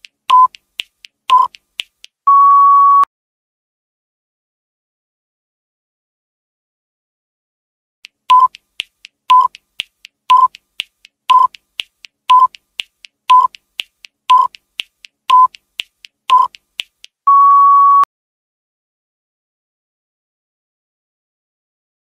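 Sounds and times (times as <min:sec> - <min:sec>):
short timer beeps: 0:00.3 - 0:00.6, 0:01.3 - 0:01.6, 0:08.3 - 0:08.6, 0:09.3 - 0:09.6, 0:10.3 - 0:10.6, 0:11.3 - 0:11.6, 0:12.3 - 0:12.6, 0:13.3 - 0:13.6, 0:14.3 - 0:14.6, 0:15.3 - 0:15.6, 0:16.3 - 0:16.6, 0:17.3 - 0:18.1
long higher beep: 0:02.3 - 0:03.1, 0:17.3 - 0:18.1.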